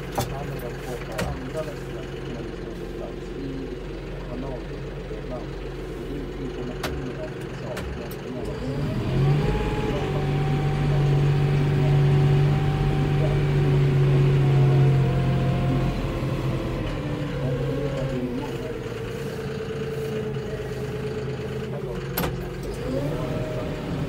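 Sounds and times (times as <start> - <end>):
tractor diesel engine revving: 0.0 - 24.0.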